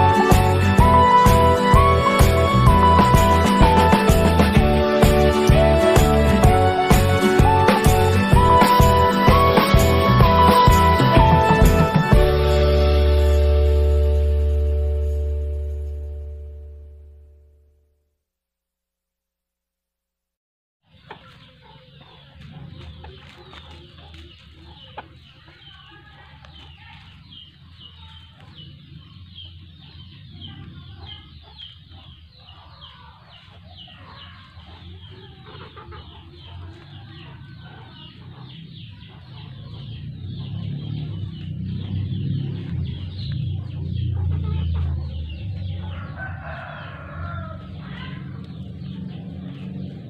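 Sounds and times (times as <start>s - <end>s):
rooster clucking: 20.9s - 50.0s.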